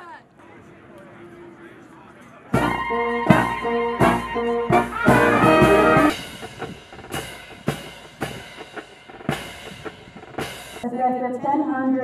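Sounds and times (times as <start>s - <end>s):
brass band playing chords: 2.5s - 10.8s
drum strikes: 2.6s - 10.8s.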